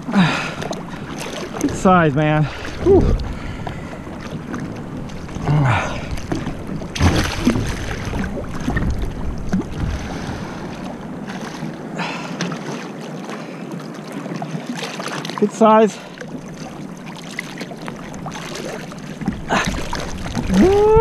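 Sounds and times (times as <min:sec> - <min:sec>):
wind on microphone: 0:00.0 - 0:11.8, 0:18.0 - 0:21.0
water splashing and sloshing: 0:00.0 - 0:21.0
loud splash: 0:07.0 - 0:08.3.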